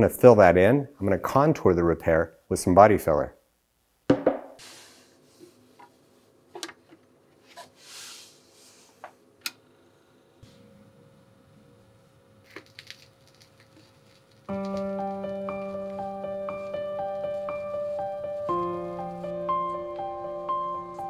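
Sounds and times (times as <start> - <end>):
piano music: 14.5 - 21.0.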